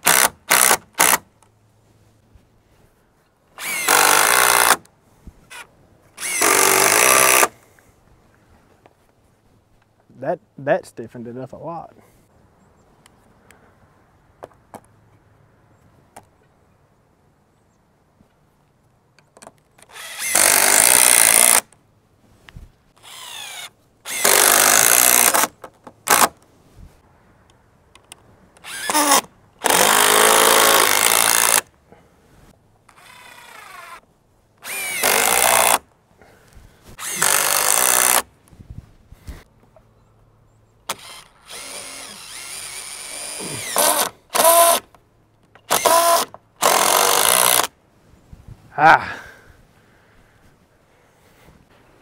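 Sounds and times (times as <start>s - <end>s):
power drill driving screws: 0.0s - 1.2s, 3.6s - 4.8s, 6.2s - 7.5s, 19.8s - 21.7s, 23.0s - 25.5s, 26.1s - 26.4s, 28.6s - 31.7s, 32.9s - 34.0s, 34.6s - 35.8s, 37.0s - 38.3s, 40.9s - 44.9s, 45.7s - 47.7s.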